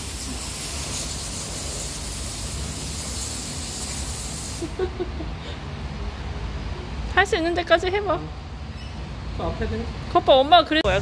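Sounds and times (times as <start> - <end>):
car wash spray wand hissing: 0.0 - 4.8.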